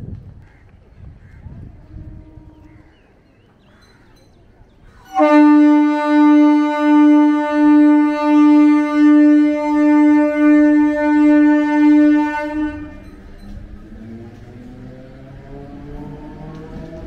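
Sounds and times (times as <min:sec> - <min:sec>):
train air horn blast: 0:01.8 - 0:02.8, 0:05.0 - 0:13.3.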